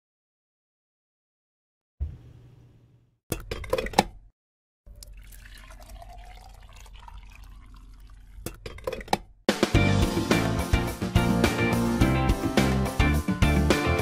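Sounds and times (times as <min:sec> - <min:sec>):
coffee pouring into mug: 0:04.9 - 0:08.5.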